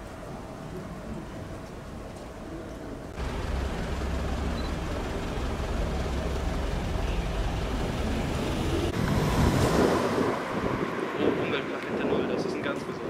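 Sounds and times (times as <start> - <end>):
truck diesel engine rumbling: 3.0 - 10.9.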